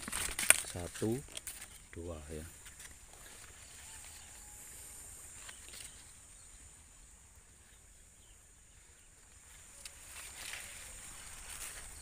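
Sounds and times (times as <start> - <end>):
corn leaves rustling: 0.0 - 7.9, 8.7 - 12.0
insects chirping: 0.0 - 12.0.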